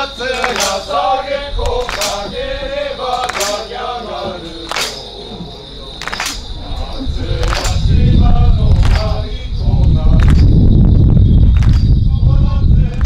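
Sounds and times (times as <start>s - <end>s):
sharp percussion strikes: 0.0s - 1.0s, 3.0s - 3.7s, 4.6s - 5.2s
folk singing: 0.0s - 10.7s, 11.4s - 13.0s
loud low rumble: 6.6s - 13.0s.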